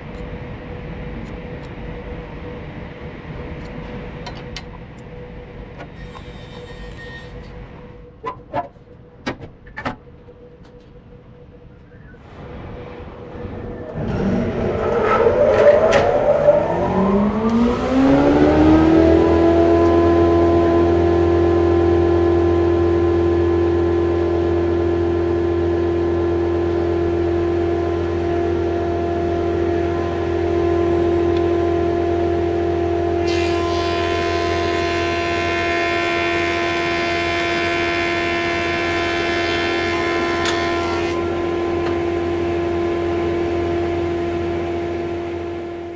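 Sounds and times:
higher machine whine: 0.0 - 45.9
planer motor whine: 13.3 - 45.9.

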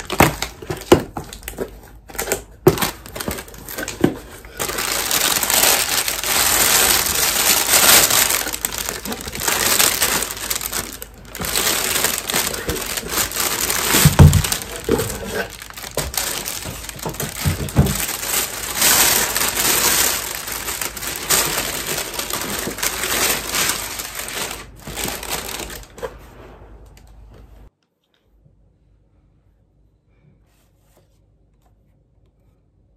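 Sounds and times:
plastic bag crinkling: 0.0 - 26.1.

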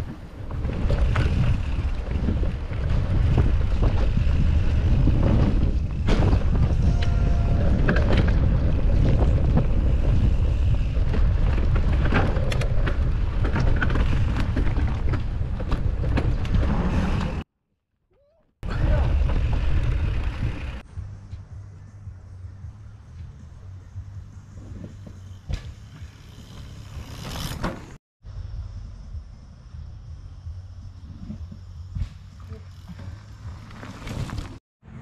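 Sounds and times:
bike rattling over rough ground: 0.0 - 17.4, 18.6 - 20.9, 24.5 - 28.0, 30.9 - 34.6
wind buffeting microphone: 0.0 - 17.4.

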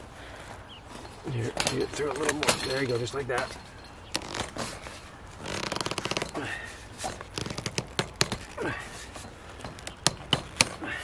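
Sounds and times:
ratcheting rasp of pipe ribs: 1.6 - 11.0
sharp clicks and knocks: 7.1 - 10.8.

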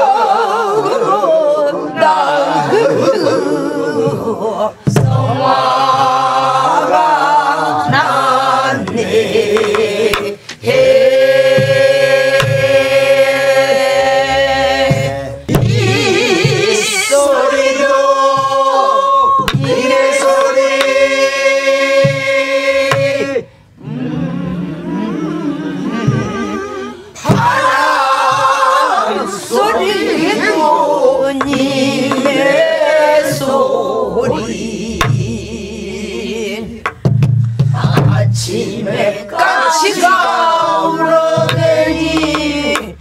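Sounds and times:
group singing folk song: 0.0 - 43.0
sharp knocks: 8.8 - 10.6, 19.4 - 21.0, 31.4 - 32.7, 41.4 - 43.0.

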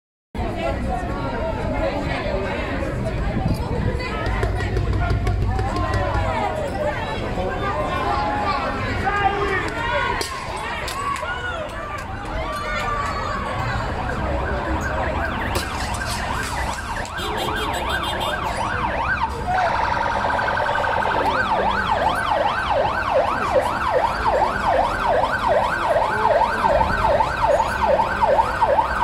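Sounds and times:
emergency siren yelping: 13.5 - 29.0.

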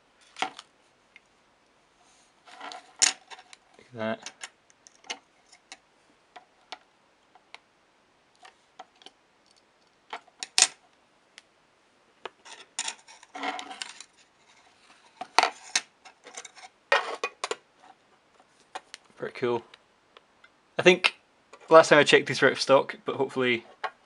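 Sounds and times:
rustle: 0.0 - 7.4, 12.3 - 19.7.

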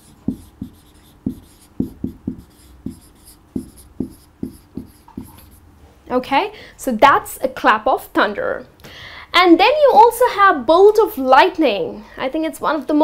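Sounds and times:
marker pen writing on whiteboard: 0.0 - 5.6.

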